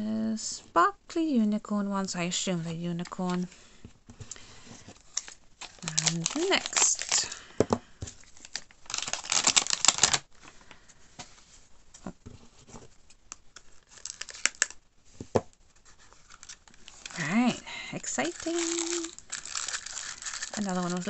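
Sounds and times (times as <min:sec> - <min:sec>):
plastic packaging crinkling: 0:04.9 - 0:10.3, 0:13.3 - 0:14.8, 0:16.1 - 0:21.0.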